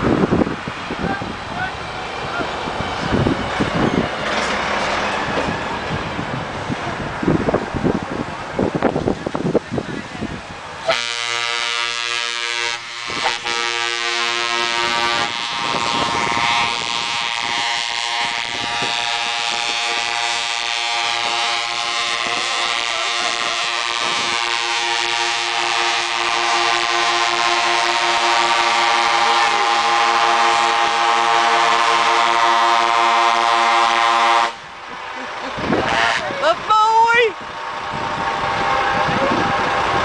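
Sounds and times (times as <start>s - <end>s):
lorry engine and tyres passing: 0.0s - 9.4s, 14.3s - 40.0s
truck air horn blasts: 10.9s - 34.7s, 35.8s - 36.3s.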